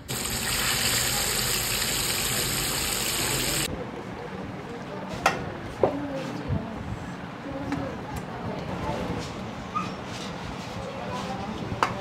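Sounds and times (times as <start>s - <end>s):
fish sizzling in hot oil: 0.0s - 3.7s.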